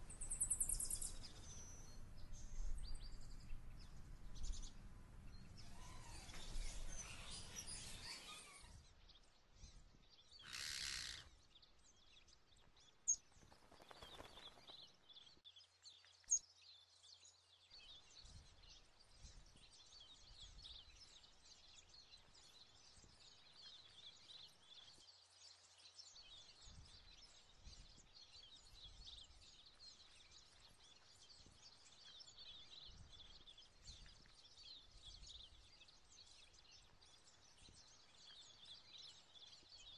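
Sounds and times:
faint high chirping: 0.0 - 3.5, 5.4 - 8.9.

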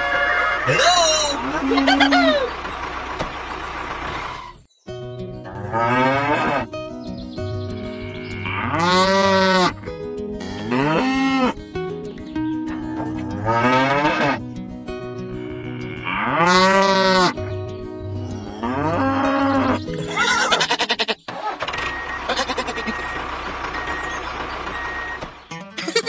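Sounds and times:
cow mooing: 0.0 - 2.5, 5.5 - 6.7, 8.0 - 9.8, 10.4 - 11.6, 12.9 - 14.4, 15.4 - 17.4, 18.3 - 21.1
background music: 4.9 - 20.4.

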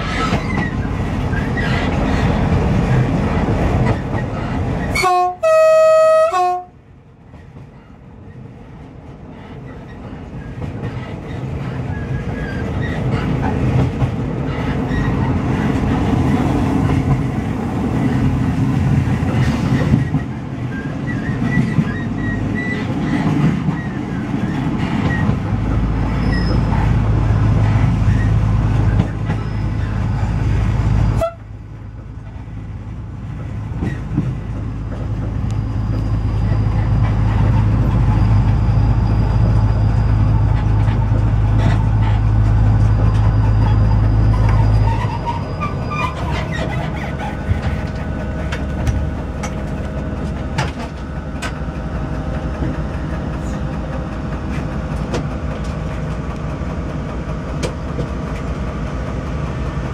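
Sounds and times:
wheel squeals: 0.0 - 2.4, 9.7 - 13.5, 14.5 - 16.0, 19.3 - 27.0, 27.7 - 31.4, 34.8 - 49.6
train wheels rumbling on rail: 0.0 - 59.9.

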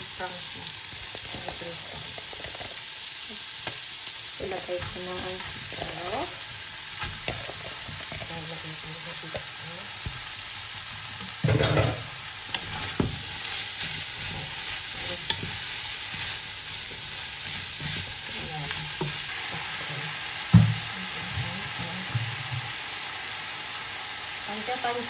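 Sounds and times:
food sizzling in a pot: 0.0 - 25.0
spatula scraping a pot: 11.4 - 19.4.

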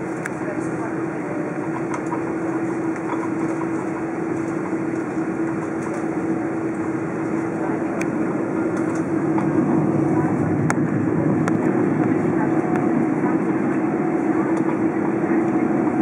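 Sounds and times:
airliner engines humming: 0.0 - 16.0.

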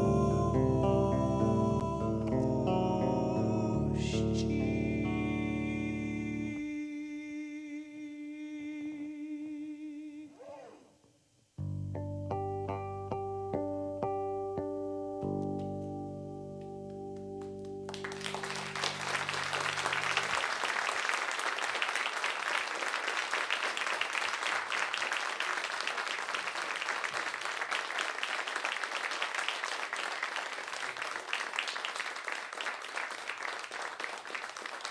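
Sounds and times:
low held music chord: 0.0 - 6.6
audience applauding: 17.4 - 34.9.

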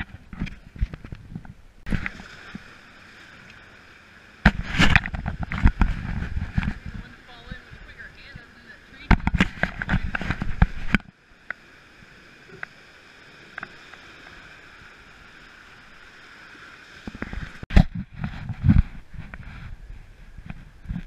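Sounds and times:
water splashes and knocks: 0.0 - 8.0, 9.0 - 12.8, 13.4 - 14.6, 16.9 - 19.4
rushing whitewater: 1.8 - 17.7.

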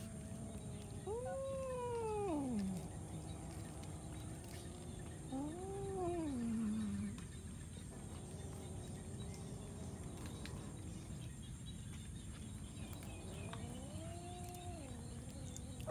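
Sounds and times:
cat meowing: 13.7 - 15.0.

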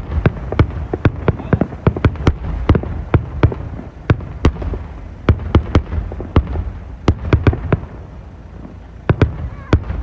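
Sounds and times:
firework bangs and pops: 0.0 - 10.0
low rumble: 0.0 - 10.0.

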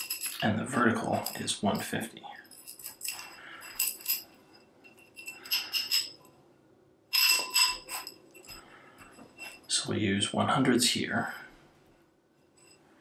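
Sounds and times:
metal tubes clinking: 0.0 - 6.4, 7.1 - 9.9.

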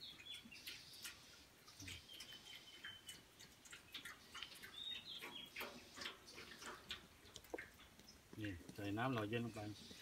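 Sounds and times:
bird chirping: 0.0 - 6.9
water poured into metal pan: 0.6 - 8.6.

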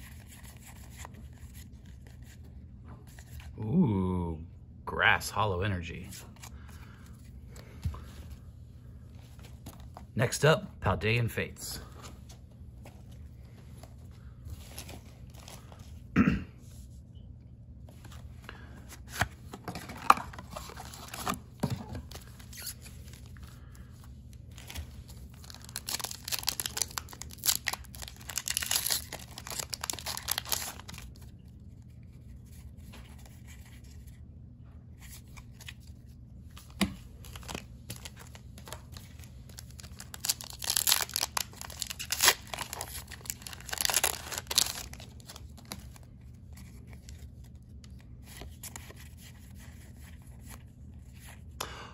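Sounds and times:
foil wrapper tearing and crinkling: 24.6 - 31.2, 37.2 - 46.1.

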